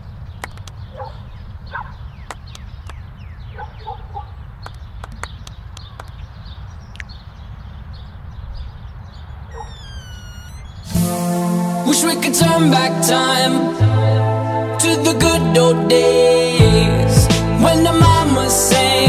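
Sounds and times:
short chirps and clicks: 9.5s - 11.0s.

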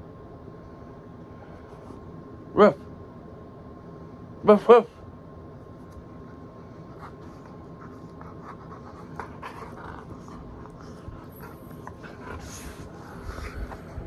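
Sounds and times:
dog panting: 6.2s - 14.0s.

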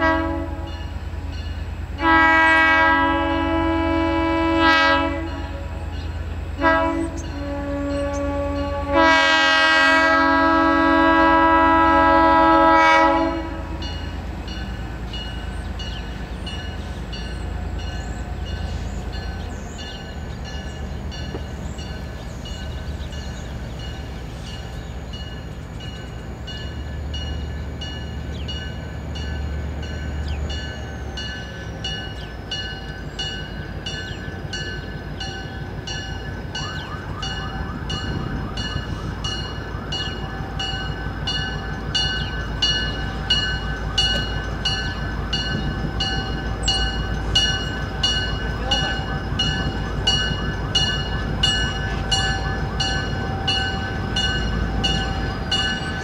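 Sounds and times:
locomotive air horn: 0.0s - 1.0s, 2.0s - 6.0s, 6.6s - 14.1s.

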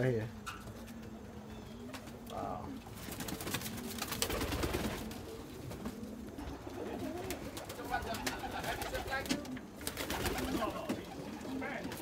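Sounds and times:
pigeons cooing: 0.1s - 12.0s.

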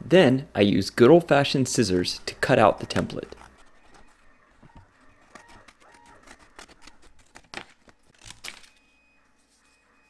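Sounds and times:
scissors cutting cardboard: 2.4s - 8.8s.

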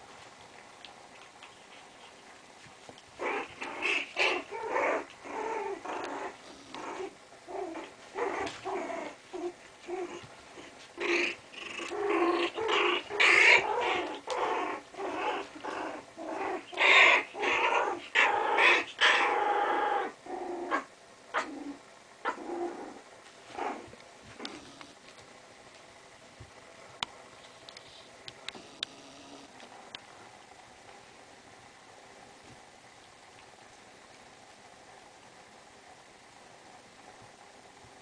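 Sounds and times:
puppies play-growling: 0.0s - 25.4s.

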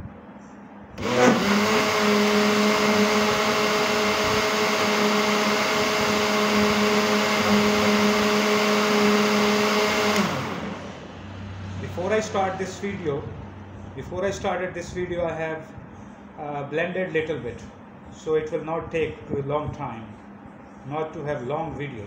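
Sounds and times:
blender motor whining: 1.0s - 11.1s.

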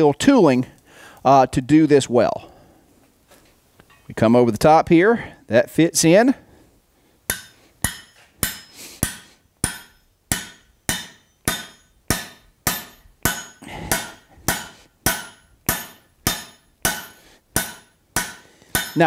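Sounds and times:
hammer striking metal on anvil: 7.3s - 19.0s.

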